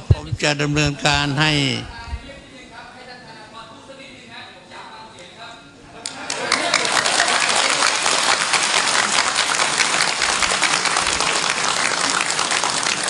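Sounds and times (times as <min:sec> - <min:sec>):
crowd applauding: 0:06.0 - 0:13.0.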